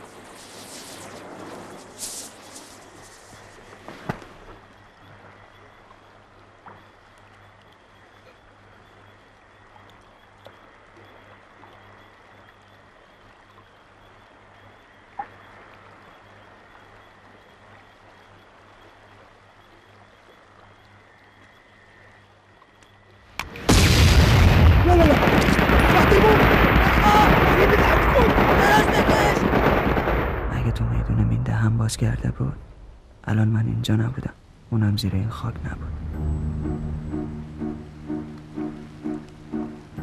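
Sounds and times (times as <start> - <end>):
loud battle noise: 23.7 - 29.8
low hum and hiss: 29.6 - 40.0.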